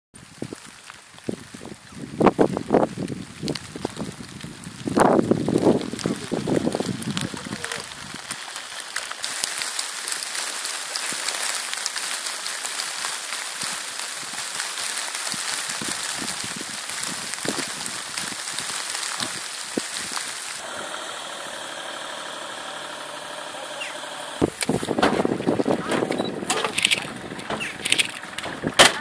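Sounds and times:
high hiss with crackles: 0.2s - 29.0s
vehicle engine idling: 20.6s - 29.0s.

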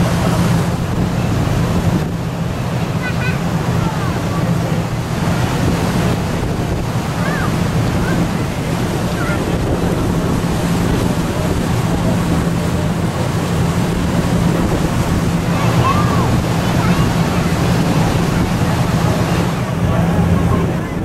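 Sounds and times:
boat engine drone: 0.0s - 21.0s
water rushing: 0.0s - 21.0s
wind buffeting microphone: 0.0s - 21.0s.

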